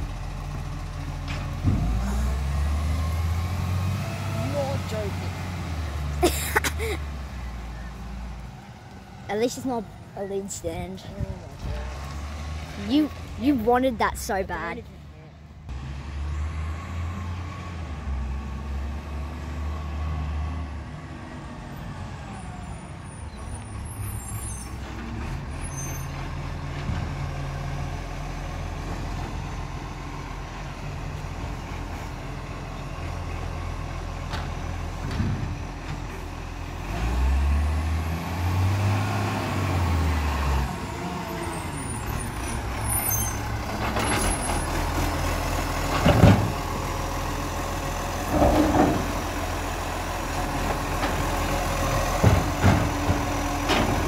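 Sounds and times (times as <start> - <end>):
garbage truck engine running: 23.5 - 54.0.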